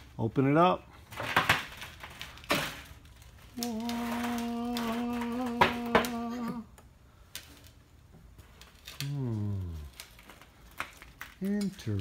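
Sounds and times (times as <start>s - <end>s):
man humming: 3.6s - 6.8s, 9.0s - 10.0s.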